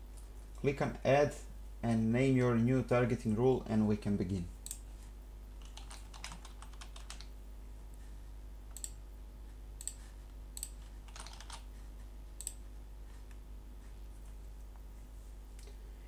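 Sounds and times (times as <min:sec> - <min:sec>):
faint low hum: 0:00.0 - 0:16.0
typing on computer keyboard: 0:05.6 - 0:07.3, 0:10.6 - 0:11.7.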